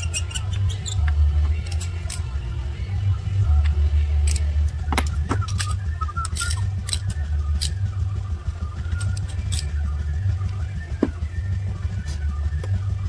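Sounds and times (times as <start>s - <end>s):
steady low rumble: 0.0s - 13.0s
metallic clinks of socket tool: 0.9s - 2.3s, 4.2s - 7.8s, 8.9s - 9.8s.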